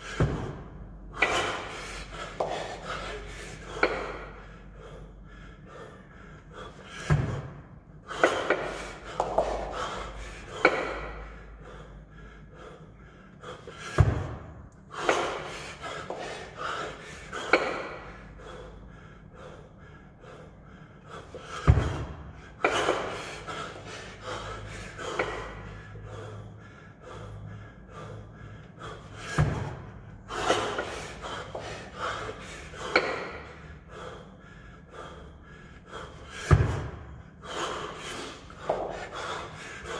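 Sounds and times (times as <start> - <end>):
man breathing heavily: 0.0 - 39.9
kettlebell heavy thud: 21.6 - 23.2, 36.4 - 37.0.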